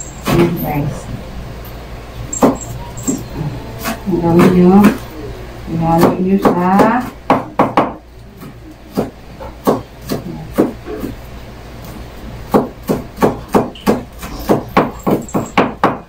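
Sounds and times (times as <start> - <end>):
knife chopping on cutting board: 3.8 - 5.0, 5.9 - 11.2, 12.5 - 16.0.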